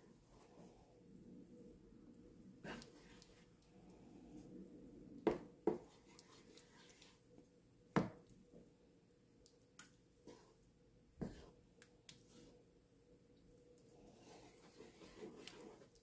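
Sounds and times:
faint steady hum: 0:00.0 - 0:16.0
wooden spoon stirring stew: 0:05.2 - 0:07.2, 0:10.2 - 0:10.6, 0:11.2 - 0:11.5, 0:14.0 - 0:16.0.

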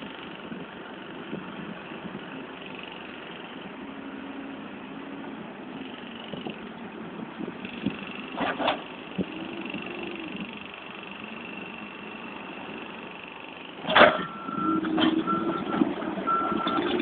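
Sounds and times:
diesel engine running: 0:00.0 - 0:17.0.

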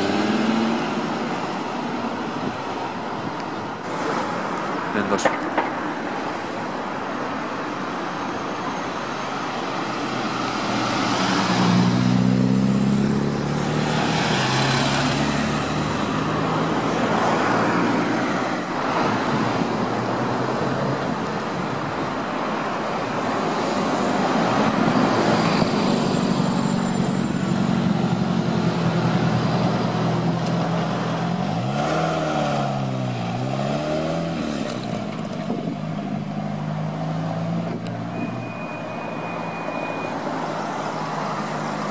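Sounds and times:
engine revving: 0:31.5 - 0:32.6.

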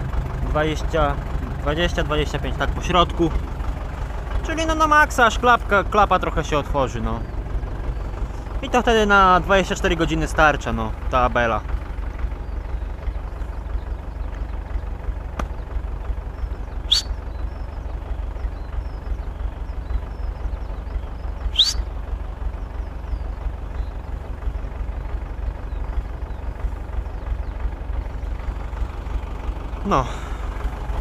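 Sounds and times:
tractor engine rumbling: 0:00.0 - 0:31.0
sharp high-pitched squeaks: 0:16.9 - 0:17.1, 0:21.5 - 0:21.8.

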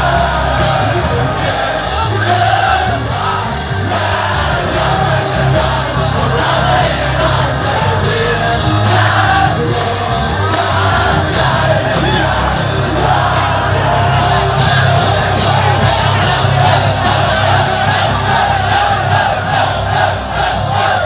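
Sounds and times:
live band music: 0:00.0 - 0:21.0
steady bass line: 0:00.0 - 0:21.0
voices singing: 0:00.0 - 0:21.0.

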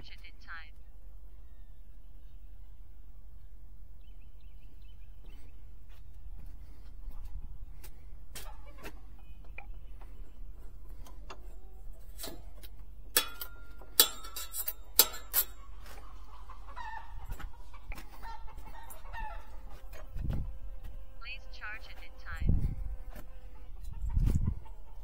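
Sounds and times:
saw blade clicking and clacking: 0:12.2 - 0:15.6
wind rumble on microphone: 0:19.2 - 0:21.2, 0:22.3 - 0:25.0.

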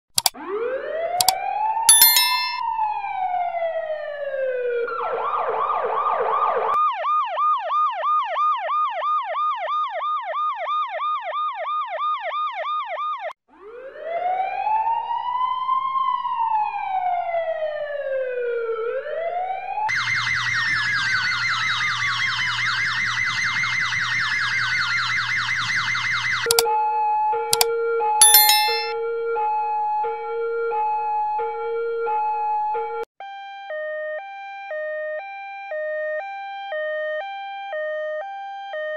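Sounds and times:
fire truck siren wailing: 0:03.5 - 0:06.7, 0:13.6 - 0:27.3
dense siren blare with sweeps: 0:13.6 - 0:26.4.

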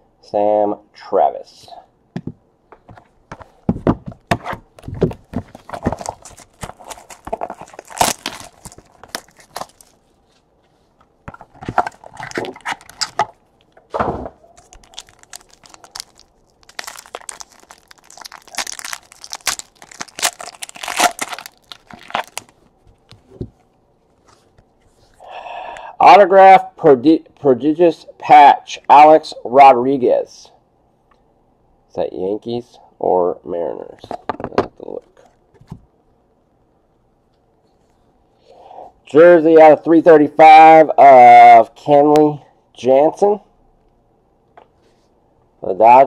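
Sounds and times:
cardboard box opening: 0:04.4 - 0:09.9
plastic wrapper tearing and crinkling: 0:05.4 - 0:10.0, 0:11.3 - 0:13.4, 0:14.6 - 0:22.6.

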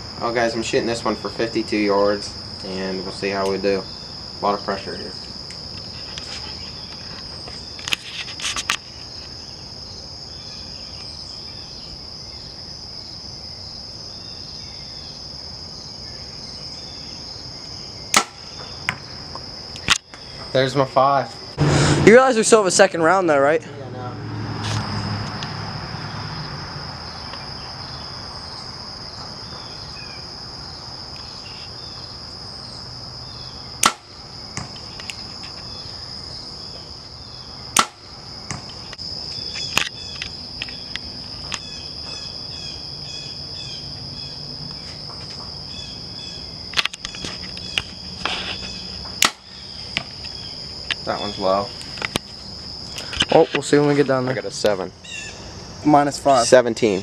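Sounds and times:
high-pitched insect chorus: 0:00.0 - 0:57.0
insect pulsed calls: 0:00.0 - 0:57.0
bow shot cracks: 0:18.1 - 0:19.0, 0:33.8 - 0:34.8, 0:37.8 - 0:38.7, 0:49.2 - 0:49.5.

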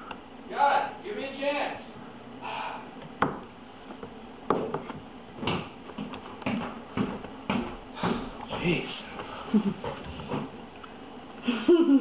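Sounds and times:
knocks on a tabletop: 0:03.2 - 0:03.4.

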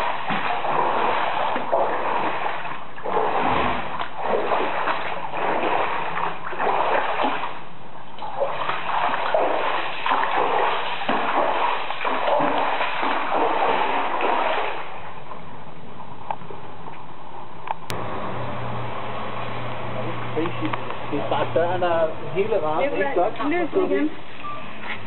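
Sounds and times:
floodwater gushing and splashing: 0:00.0 - 0:15.5.

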